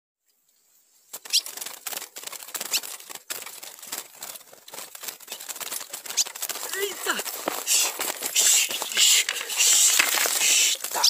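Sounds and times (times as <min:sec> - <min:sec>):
bird wings fluttering against cage bars: 0:01.1 - 0:11.0.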